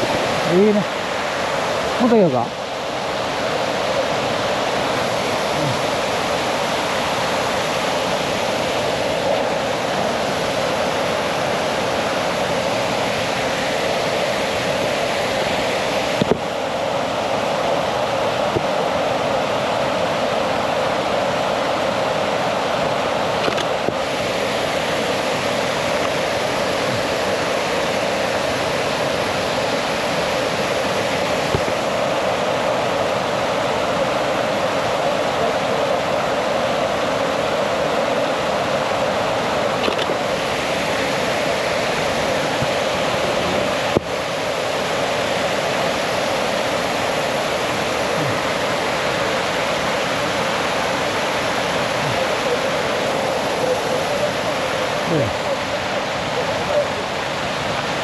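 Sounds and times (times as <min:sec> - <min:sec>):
waterfall roaring: 0:00.0 - 0:58.0
sharp click: 0:39.8 - 0:40.2.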